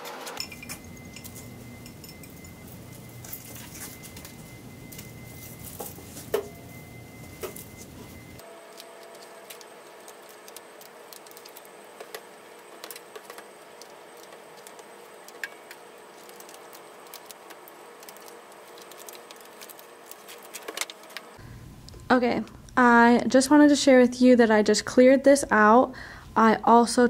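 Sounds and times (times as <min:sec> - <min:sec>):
faint room hum: 0:00.0 - 0:27.0
paper rustling and clicks: 0:08.7 - 0:21.3.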